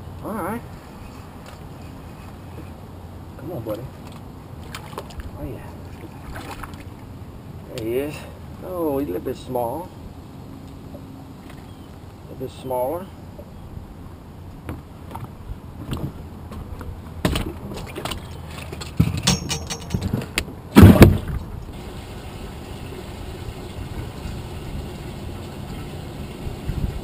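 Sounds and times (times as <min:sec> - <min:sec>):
gear clicking and rattling in boat: 0:14.7 - 0:21.7.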